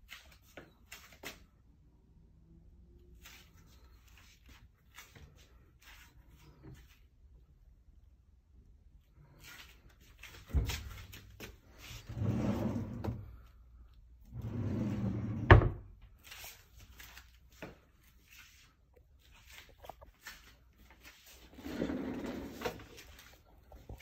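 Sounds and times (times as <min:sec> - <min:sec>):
drawer rolling slide: 0:11.8 - 0:13.3, 0:14.3 - 0:15.8, 0:21.5 - 0:23.0
drawer shutting with a bang: 0:15.3 - 0:15.8.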